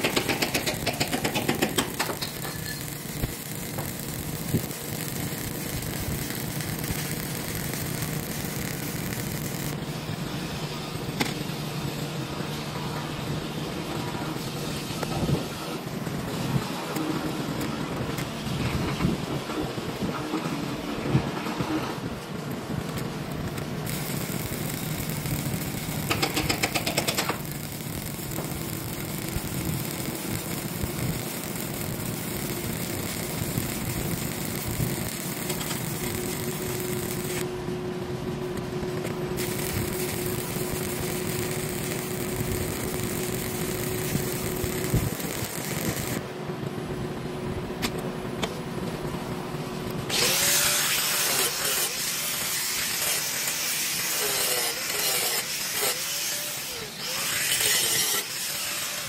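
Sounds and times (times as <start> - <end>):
angle grinder on metal: 0.0 - 9.7, 23.9 - 37.4, 39.4 - 46.2, 50.1 - 59.0
welding arc crackling: 0.0 - 12.1, 22.4 - 37.5, 38.5 - 46.2, 49.9 - 59.0.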